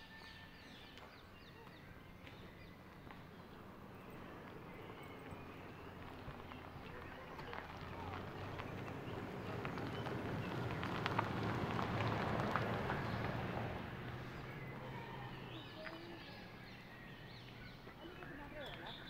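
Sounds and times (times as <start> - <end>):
birds chirping: 0.0 - 19.0
rushing noise with clicks: 7.6 - 14.2.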